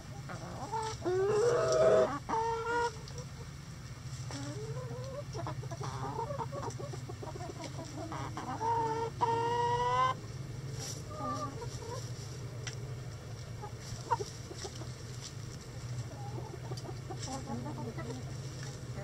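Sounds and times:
chickens clucking: 0:00.0 - 0:19.0
steady low hum: 0:00.0 - 0:19.0
loud drawn-out chicken call: 0:01.1 - 0:02.8.

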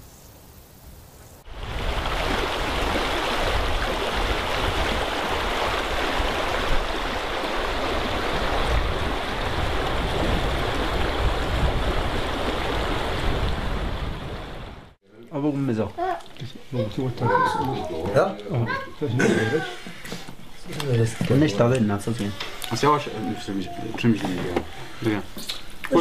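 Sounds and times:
stream rushing over rocks: 0:01.5 - 0:14.4.

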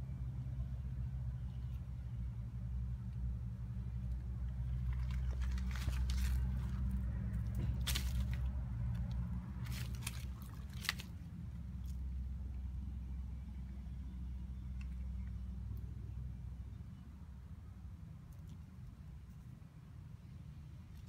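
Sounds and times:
low hum: 0:00.0 - 0:21.0
dry leaves and pebbles rustling: 0:04.0 - 0:12.8.

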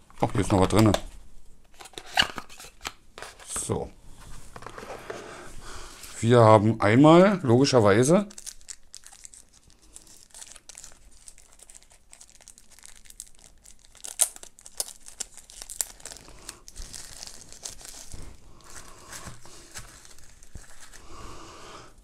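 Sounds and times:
plastic wrapping crinkling: 0:08.2 - 0:21.3.

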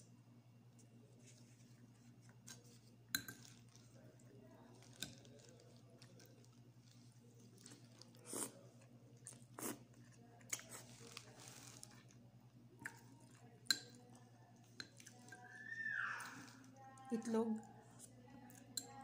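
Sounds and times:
chewing and crunching cracker: 0:02.3 - 0:15.4.

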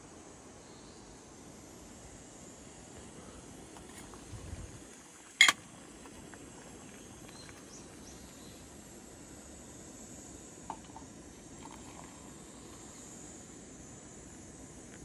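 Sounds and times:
insects chirring: 0:00.1 - 0:15.0.

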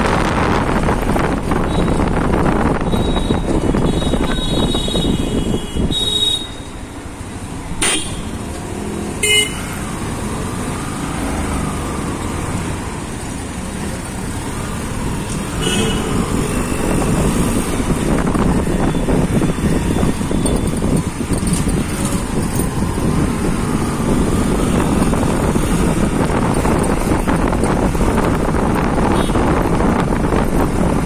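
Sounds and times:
wind on microphone: 0:00.0 - 0:06.1, 0:14.9 - 0:31.0
traffic engines rumbling: 0:00.0 - 0:31.0
vehicle horn toots: 0:02.9 - 0:06.8, 0:07.8 - 0:08.3, 0:09.2 - 0:09.8, 0:15.6 - 0:16.2, 0:29.1 - 0:29.5.

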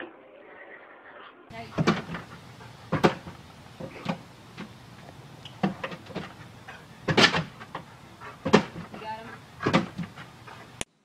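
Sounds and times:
dog paws knocking on door: 0:01.5 - 0:02.3, 0:02.9 - 0:04.8, 0:05.6 - 0:10.4.

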